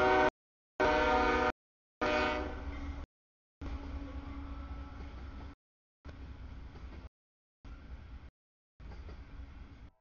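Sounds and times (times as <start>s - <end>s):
locomotive horn blast: 0.0s - 2.7s
train rumbling past: 1.0s - 7.1s, 7.7s - 10.0s.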